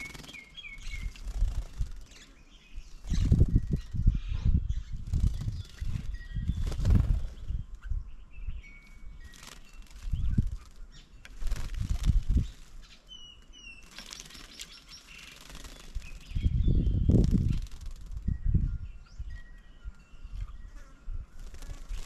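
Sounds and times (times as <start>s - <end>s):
bird wings fluttering: 0.0s - 2.3s, 3.0s - 4.0s, 5.0s - 7.6s, 9.2s - 12.9s, 13.7s - 18.4s, 21.4s - 22.0s
birds chirping: 0.0s - 22.0s.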